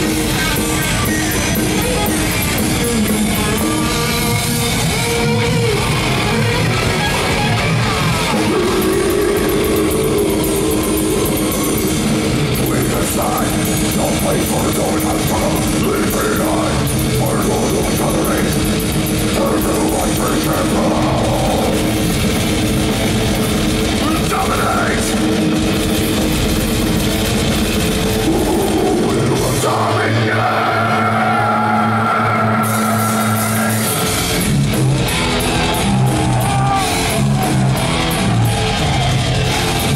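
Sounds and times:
death metal band playing live: 0.0 - 39.9.

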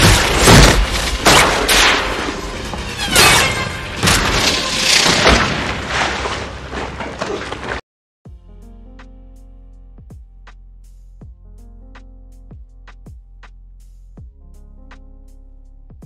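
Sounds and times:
crashes and booms of falling wreckage: 0.0 - 7.8.

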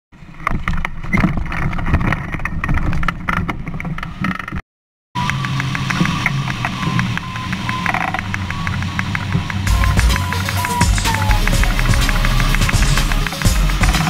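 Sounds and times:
background music with light beat: 9.7 - 14.0.

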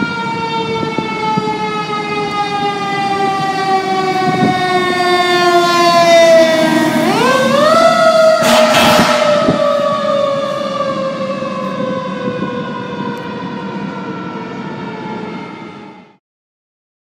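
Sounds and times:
fire truck siren wailing: 0.0 - 16.2.

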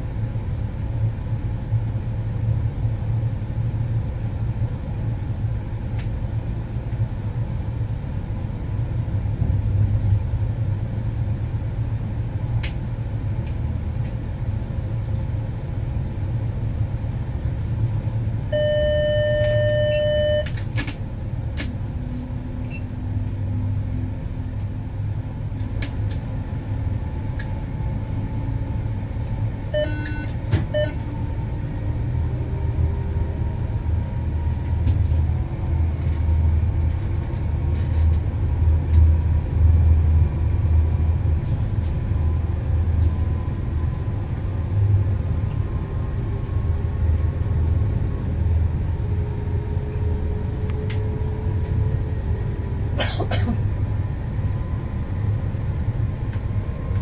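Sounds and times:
train wheels rumbling on rails: 0.0 - 18.6, 19.4 - 57.0
electronic beep: 18.5 - 20.5, 29.8 - 31.0
short beeps: 18.5 - 20.5, 29.8 - 31.0.

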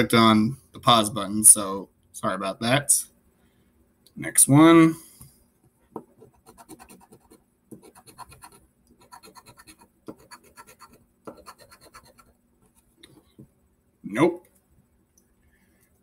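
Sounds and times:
scratching lottery ticket: 6.2 - 12.3.

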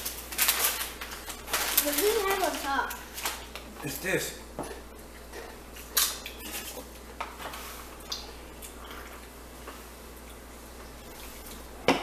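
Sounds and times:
soft eating clicks and smacks: 8.0 - 10.5.

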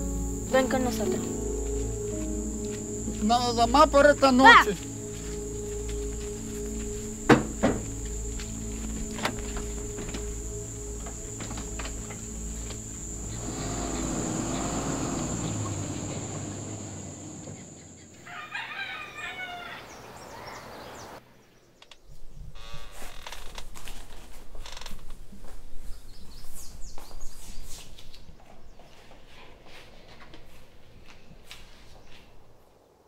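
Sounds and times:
steady high-pitched tone: 0.0 - 14.3
low sustained background tones: 0.0 - 18.2
rooster crowing: 13.0 - 21.2.

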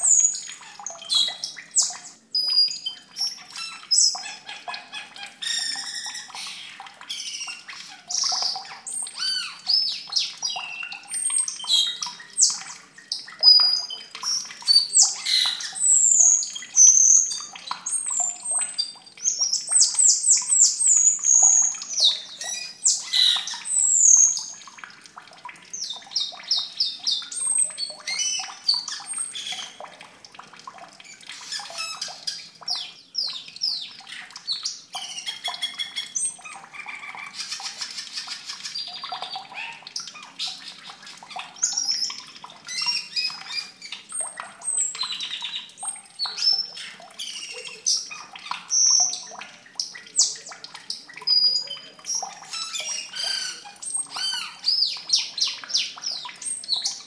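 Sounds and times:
starling calls: 14.4 - 18.4, 19.6 - 24.6, 52.2 - 54.7.

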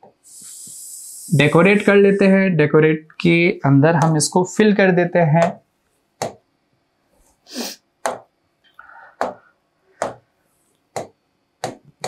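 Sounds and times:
stylus tapping on whiteboard: 6.2 - 6.4, 8.0 - 8.3, 9.2 - 9.4, 10.0 - 10.3, 10.9 - 12.0.

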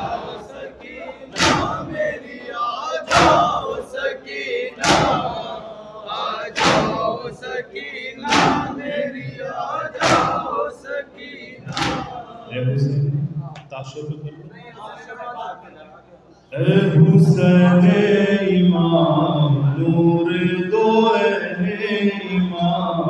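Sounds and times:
crowd chanting: 0.0 - 13.5, 16.5 - 23.0
chest beating slaps: 1.4 - 1.9, 4.8 - 5.3, 6.6 - 7.1, 8.3 - 8.8, 10.0 - 10.5, 11.7 - 12.2.

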